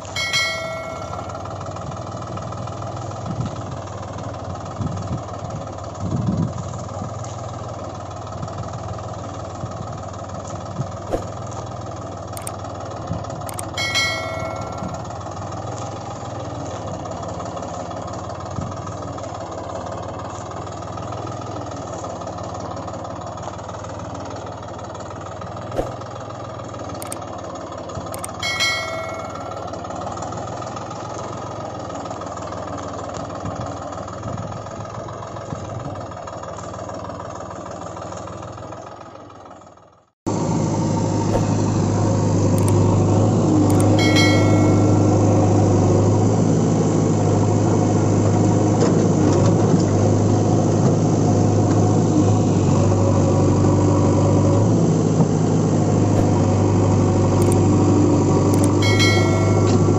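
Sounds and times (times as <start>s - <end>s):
heavy engine running: 0.0s - 59.9s.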